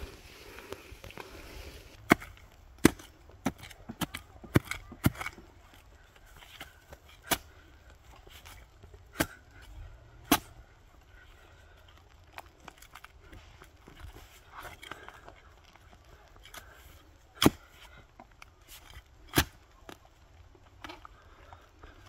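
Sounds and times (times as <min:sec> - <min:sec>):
machete chopping into earth: 0:10.2 - 0:10.5, 0:19.3 - 0:19.6.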